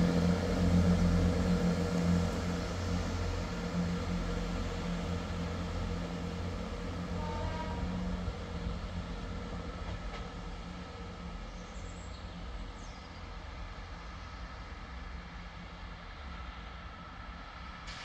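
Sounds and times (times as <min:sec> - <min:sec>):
diesel train engines droning: 0:00.0 - 0:18.0
faint high squeal: 0:06.9 - 0:08.7.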